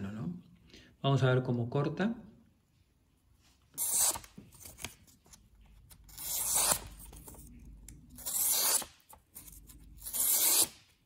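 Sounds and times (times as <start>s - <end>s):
knife blade slicing paper: 3.8s - 5.0s, 6.1s - 7.4s, 8.2s - 11.0s.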